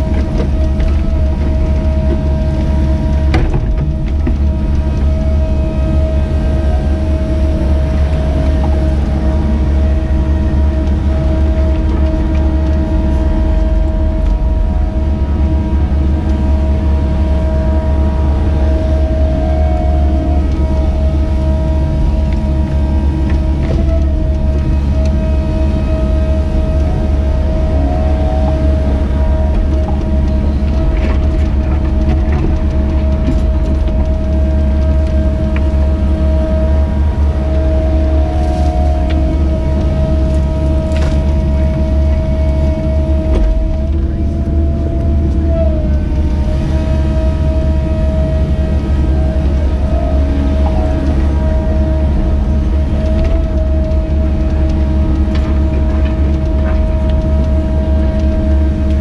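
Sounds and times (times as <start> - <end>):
excavator diesel engine with whine: 0.0 - 59.0.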